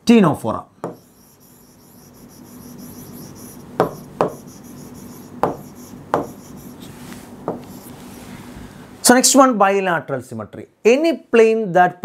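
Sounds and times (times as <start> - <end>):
faint steady hum: 0.1 - 11.0
marker writing on whiteboard: 0.8 - 8.0.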